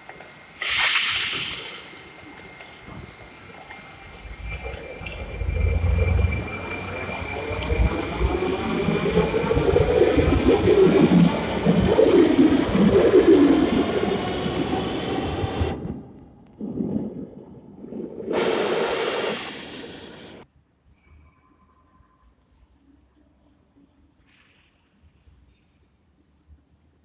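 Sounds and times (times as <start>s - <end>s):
burst of hiss: 0.6s - 2.1s.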